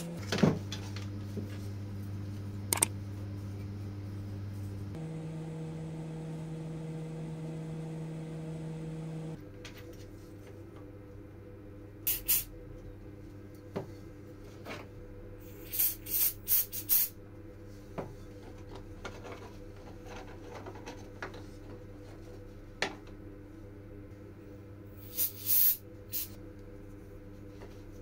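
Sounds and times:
electrical hum: 0:00.0 - 0:28.0
aerosol spray can hissing: 0:12.1 - 0:12.5, 0:15.5 - 0:17.1, 0:25.0 - 0:26.4.

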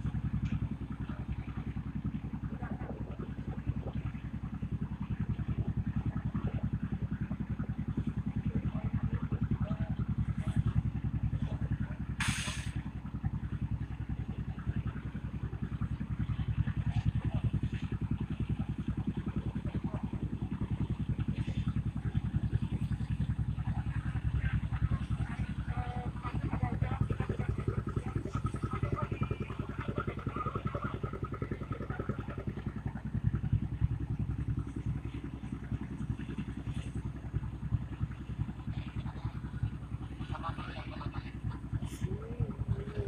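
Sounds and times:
engine running steadily: 0:00.0 - 0:43.0
short hiss: 0:12.2 - 0:12.8.

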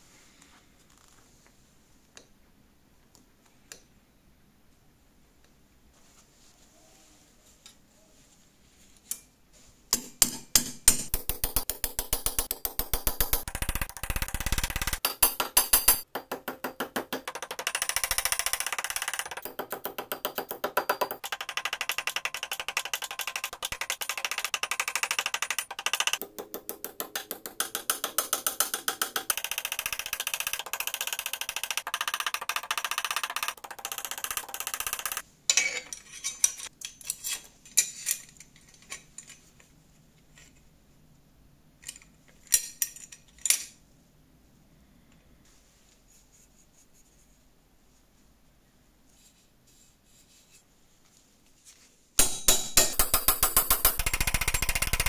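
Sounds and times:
hammer tapping thin steel: 0:09.9 - 0:36.6, 0:52.2 - 0:55.0.

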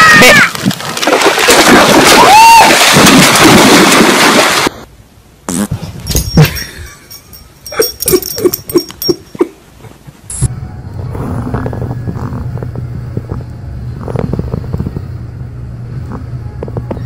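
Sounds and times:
dog splashing through water: 0:00.5 - 0:04.8.

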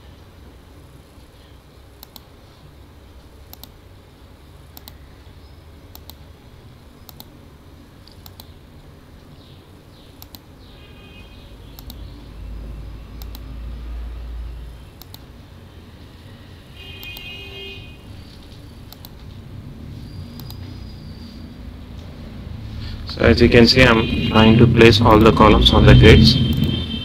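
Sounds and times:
computer mouse clicking: 0:02.0 - 0:02.3, 0:03.5 - 0:03.8, 0:04.7 - 0:05.0, 0:05.9 - 0:06.2, 0:07.0 - 0:07.4, 0:08.0 - 0:08.6, 0:10.2 - 0:10.5, 0:11.7 - 0:12.1, 0:13.2 - 0:13.5, 0:15.0 - 0:15.3, 0:18.3 - 0:19.4, 0:20.3 - 0:20.8.

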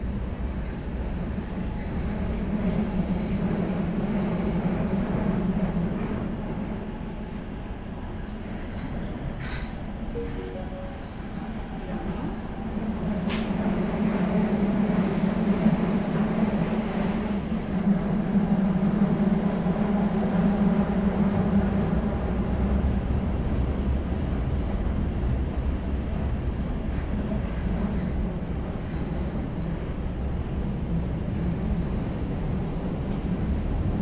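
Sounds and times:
train wheels rumbling on tracks: 0:00.0 - 0:34.0.

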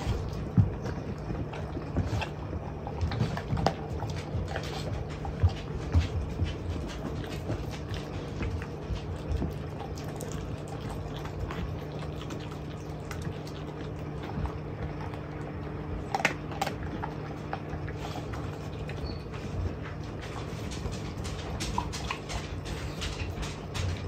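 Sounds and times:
puppies licking and chewing: 0:00.0 - 0:24.0
steady low hum: 0:00.0 - 0:24.0.

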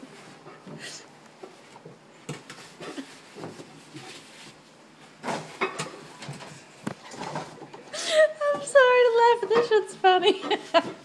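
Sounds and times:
coveralls rustling and scraping: 0:00.0 - 0:07.8.

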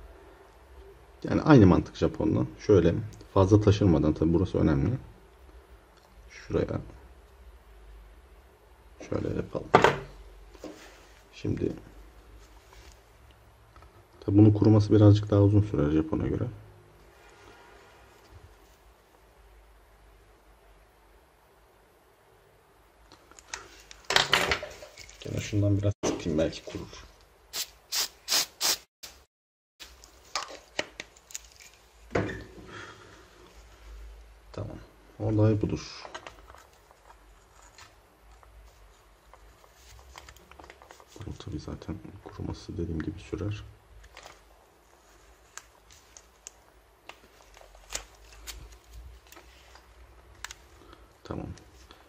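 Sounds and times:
hissing spray squirts: 0:27.5 - 0:28.9.

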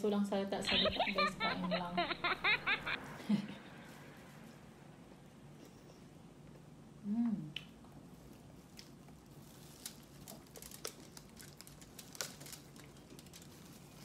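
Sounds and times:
crackly clicks and squishes: 0:07.5 - 0:14.0
chewing: 0:08.7 - 0:14.0.

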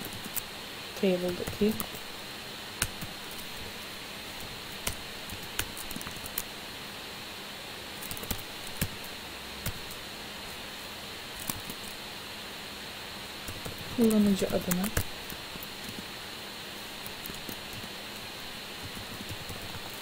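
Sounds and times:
background hiss: 0:00.0 - 0:20.0
keyboard typing: 0:18.8 - 0:20.0.

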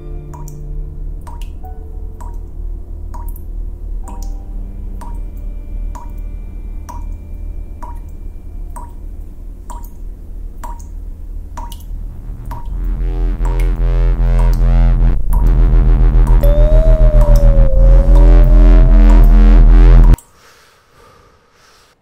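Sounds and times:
ticking beat: 0:11.7 - 0:20.2
sustained low chords: 0:11.8 - 0:20.2.

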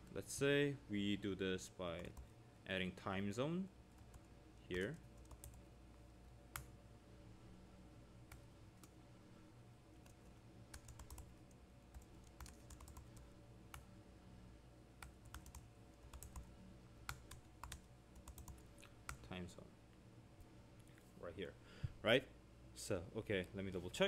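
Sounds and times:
low steady hum: 0:00.0 - 0:24.0
keyboard typing clicks: 0:10.0 - 0:11.3, 0:11.9 - 0:13.8, 0:15.0 - 0:16.5, 0:17.1 - 0:19.2.

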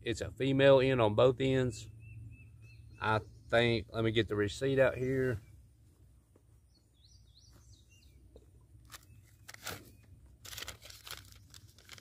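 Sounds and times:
faint bird chirps: 0:01.8 - 0:04.0
paper receipt crinkling: 0:08.8 - 0:12.0.

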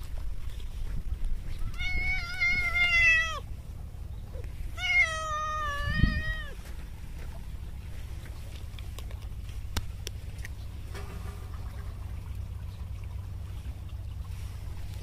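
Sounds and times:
cat meowing: 0:01.6 - 0:03.4, 0:04.7 - 0:06.6.

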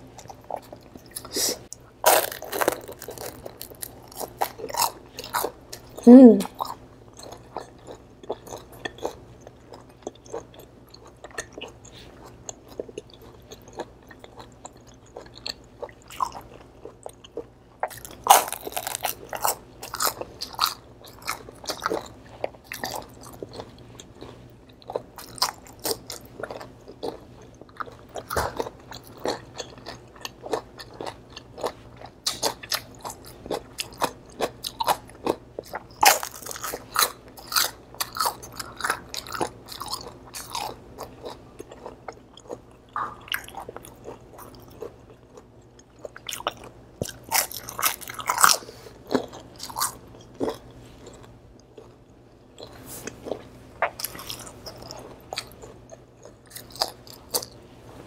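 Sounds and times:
crunching of fried food being chewed: 0:00.0 - 0:58.0.

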